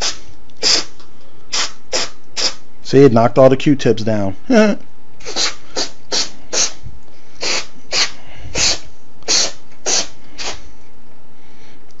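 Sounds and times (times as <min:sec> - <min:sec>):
aerosol spray hissing: 0:07.4 - 0:10.6.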